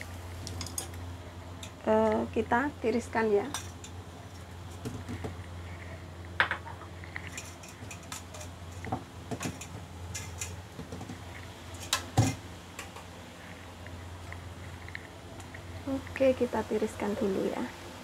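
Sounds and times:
low steady hum: 0.0 - 18.0
utensils and dishes clinking: 3.4 - 4.0, 6.4 - 11.1.

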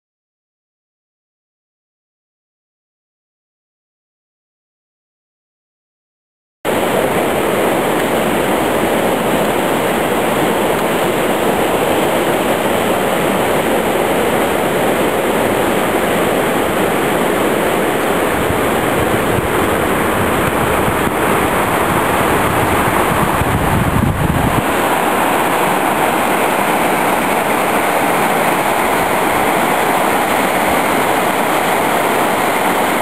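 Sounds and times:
stream rushing over stones: 6.7 - 33.0.

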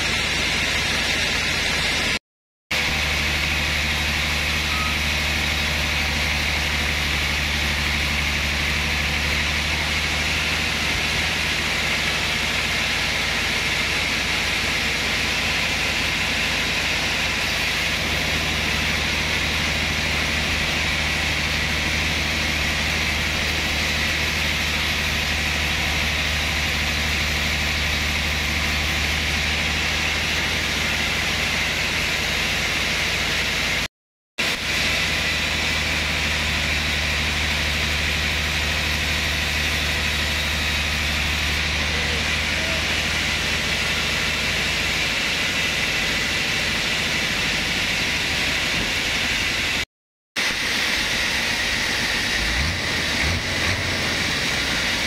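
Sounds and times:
band saw cutting wood: 34.4 - 55.0.

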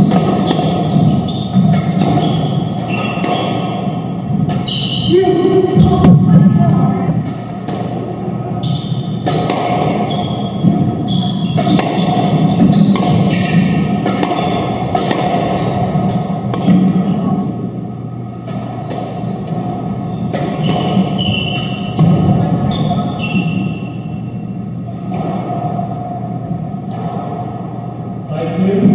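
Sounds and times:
shoes squeaking on wooden floor: 0.0 - 3.8, 4.6 - 5.1, 8.6 - 9.2, 9.9 - 13.6, 20.0 - 23.9, 25.8 - 26.7
squash ball smacking off walls: 0.0 - 4.7, 9.2 - 17.0, 20.3 - 22.4.

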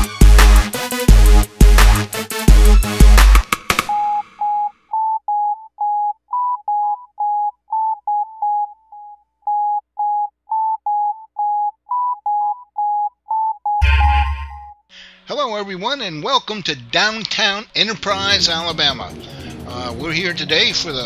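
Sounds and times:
short electronic beep tones: 13.7 - 14.8.

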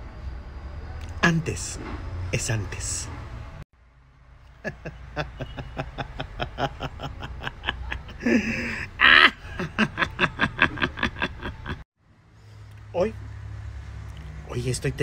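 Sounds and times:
high squealing laughs: 4.6 - 11.8
person laughing hard: 4.6 - 11.8.

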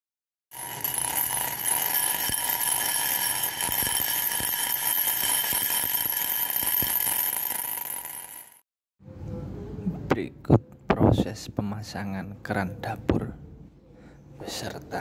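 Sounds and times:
high ringing tones: 0.5 - 8.6.

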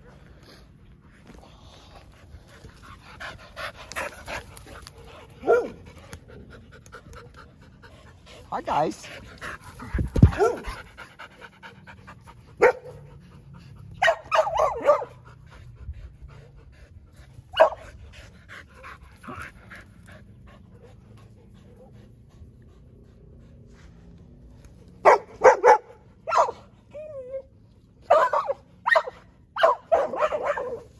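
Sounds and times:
dogs panting: 0.0 - 26.8
dog barks: 5.4 - 5.8, 10.2 - 10.8, 12.6 - 13.1, 14.0 - 15.3, 17.5 - 17.8, 25.0 - 26.7, 28.0 - 30.9.

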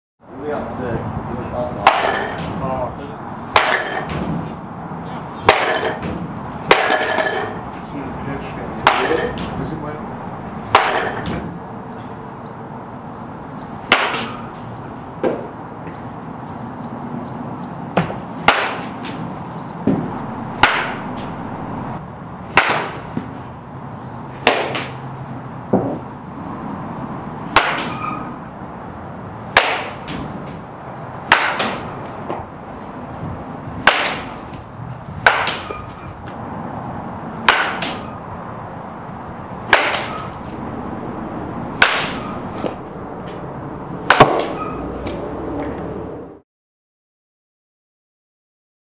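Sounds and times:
baseball bat hitting balls: 1.7 - 12.2, 12.9 - 16.3, 17.9 - 23.6, 24.2 - 26.2, 27.4 - 28.7, 29.4 - 36.4, 37.2 - 45.8.

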